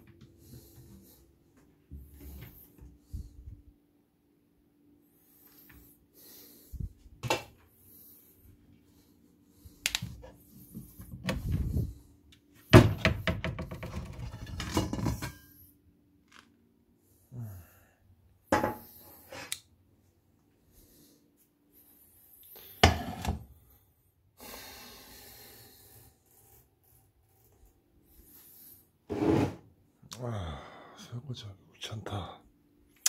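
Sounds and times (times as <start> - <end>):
dishes and utensils clattering: 13.9 - 15.5.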